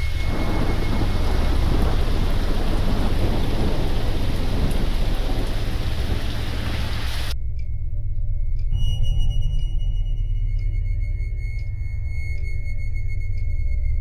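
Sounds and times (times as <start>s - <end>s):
heavy rain hissing: 0.0s - 7.4s
low rumble of thunder: 0.0s - 7.4s.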